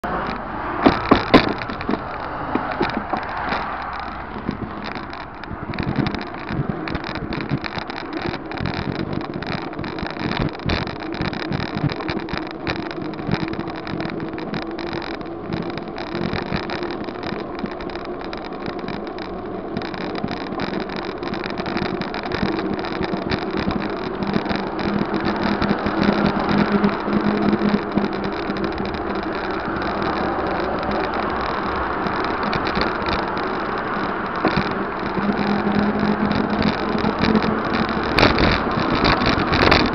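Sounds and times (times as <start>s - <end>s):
cars passing: 0.0s - 39.9s
wind noise on microphone: 0.0s - 39.9s.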